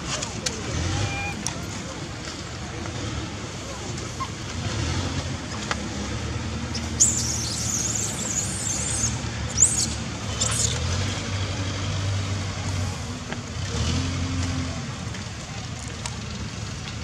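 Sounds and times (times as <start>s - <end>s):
baby monkey squealing: 7.0s - 10.8s.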